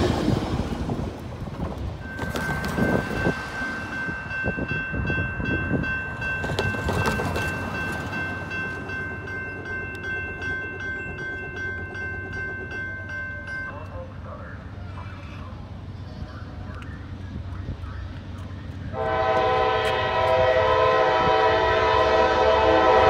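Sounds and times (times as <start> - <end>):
crossing warning bell ringing: 1.9 - 14.7.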